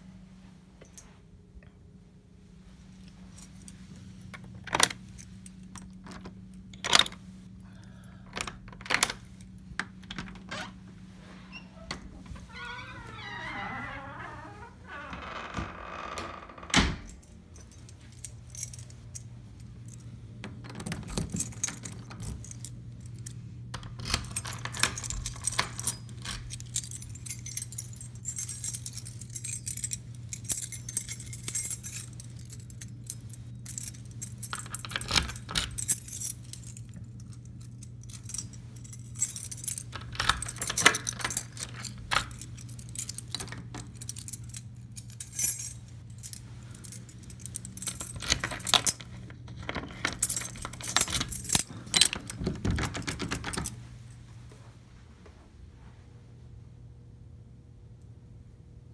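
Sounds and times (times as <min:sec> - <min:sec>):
keys jangling on a key ring: 0:17.0 - 0:53.8
metal clicks of door locks: 0:48.0 - 0:53.7.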